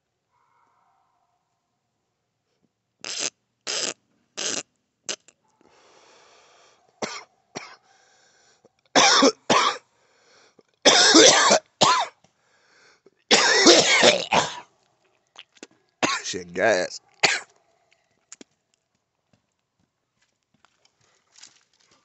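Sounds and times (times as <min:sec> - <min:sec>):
harsh rasping coughing: 0:07.0 - 0:07.8, 0:09.0 - 0:09.8, 0:10.8 - 0:12.2, 0:13.3 - 0:14.7, 0:16.0 - 0:16.4, 0:17.2 - 0:17.6.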